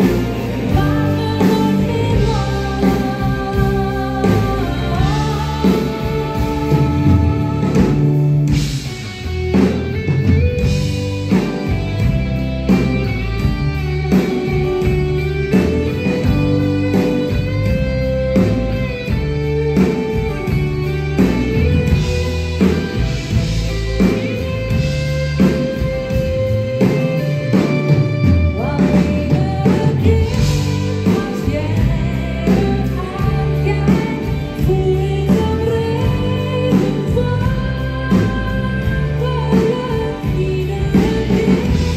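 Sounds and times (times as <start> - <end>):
woman singing: 0.0 - 8.7, 28.2 - 41.9
live pop band playing: 0.0 - 41.9.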